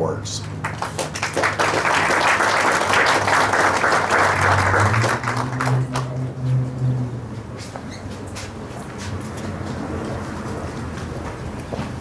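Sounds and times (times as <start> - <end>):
audience applauding: 0.4 - 6.2.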